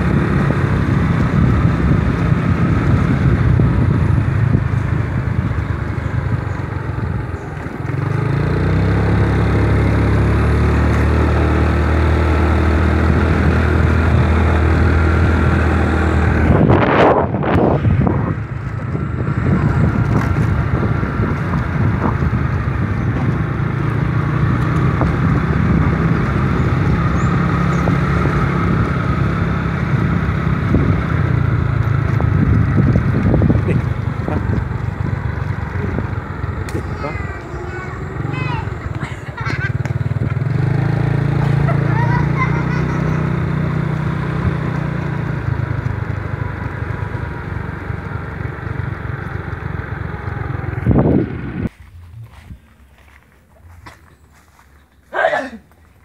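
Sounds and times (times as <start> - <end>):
wind noise on microphone: 0.0 - 7.4, 12.7 - 36.9, 50.6 - 54.0
motorcycle engine running: 0.0 - 56.0.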